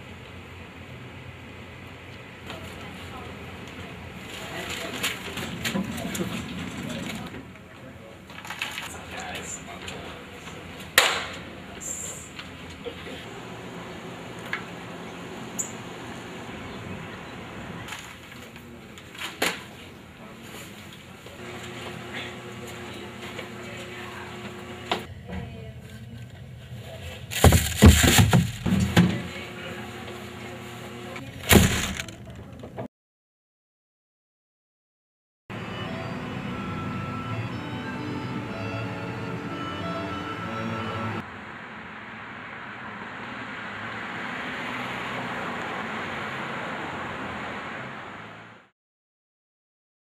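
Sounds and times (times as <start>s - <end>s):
garbage bag rustling and thumping: 27.3s - 29.2s, 31.4s - 32.2s
passing cars rushing: 40.5s - 48.7s.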